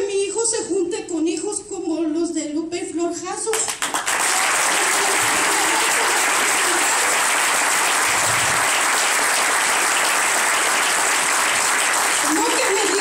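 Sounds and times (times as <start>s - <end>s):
audience applauding: 3.6s - 13.0s.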